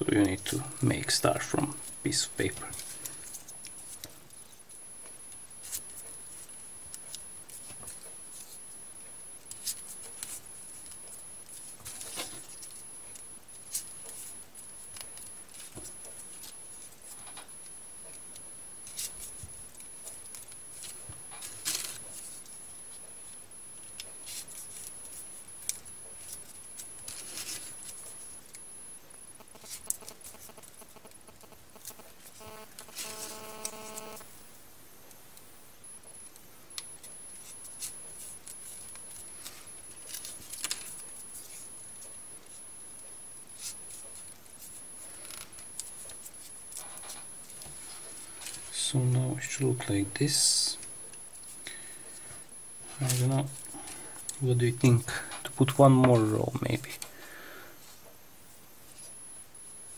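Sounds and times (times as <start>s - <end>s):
paper crinkles and clicks: 1.4s - 8.7s, 9.4s - 23.1s, 23.8s - 28.6s, 29.4s - 33.8s, 36.8s - 42.6s, 43.6s - 50.0s
paper rustling: 24.0s - 28.2s, 37.0s - 41.7s.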